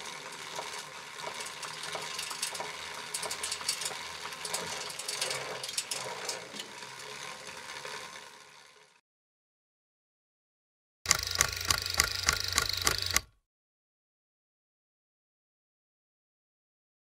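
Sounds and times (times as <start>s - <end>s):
mechanical whirring with clicks: 11.1s - 13.4s.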